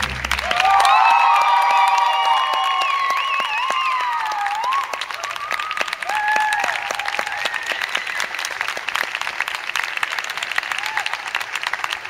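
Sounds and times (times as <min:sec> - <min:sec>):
high cheering calls: 0:00.0 - 0:08.8
audience applauding: 0:00.0 - 0:12.0.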